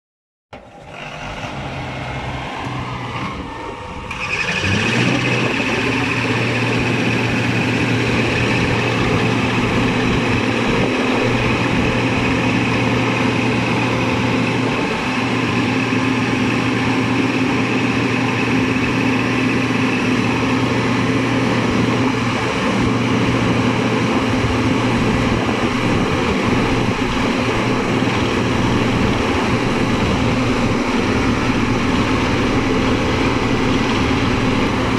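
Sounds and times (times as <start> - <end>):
diesel engine running: 0.5 - 34.9.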